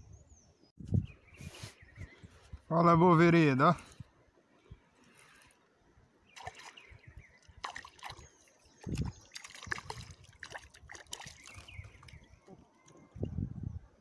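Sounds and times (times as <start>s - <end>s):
fish splashing in water: 6.4s - 6.8s, 7.5s - 12.3s
water sloshing and dripping: 6.4s - 13.3s.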